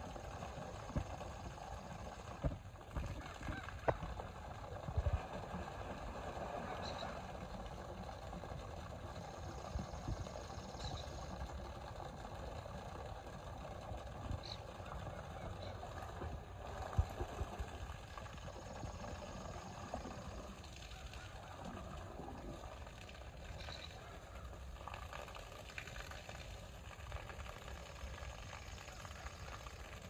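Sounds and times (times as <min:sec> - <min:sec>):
water splashing and sloshing: 0:00.0 - 0:10.3, 0:10.9 - 0:30.0
low steady rumble: 0:00.0 - 0:30.0.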